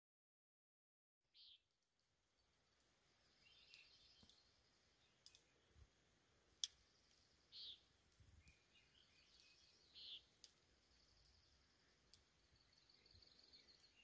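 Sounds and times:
faint sharp clicks: 2.8s - 4.5s, 5.2s - 5.9s, 6.5s - 14.0s
faint high chirp: 7.1s - 14.0s.

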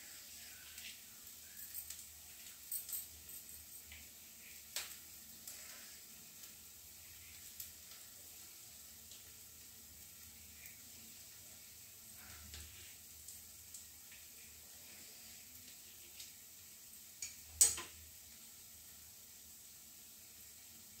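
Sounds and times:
masala sizzling in a pan: 0.0s - 21.0s
knife clicking on steel plate: 17.6s - 17.9s.

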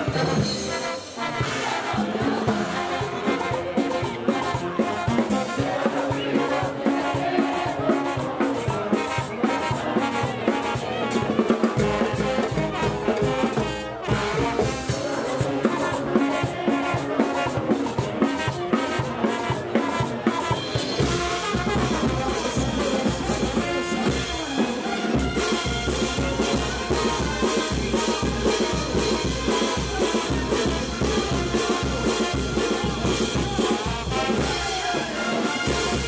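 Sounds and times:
brass band playing: 0.0s - 36.0s.

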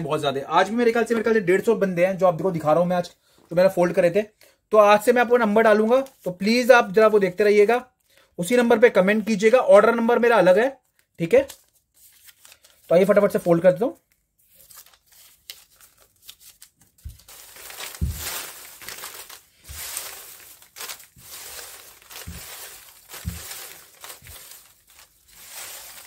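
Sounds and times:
paper rustling: 10.9s - 26.0s
soft thumps: 17.9s - 18.4s.

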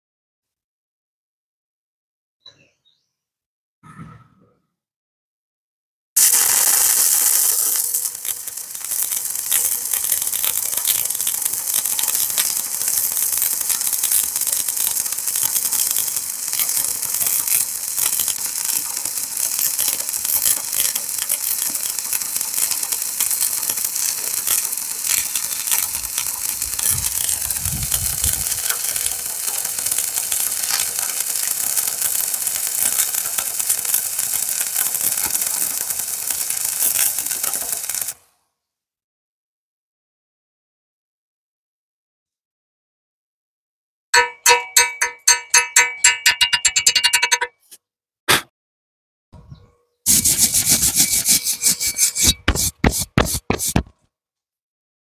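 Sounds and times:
arc welding crackling sizzle: 6.2s - 38.4s, 50.1s - 53.9s.

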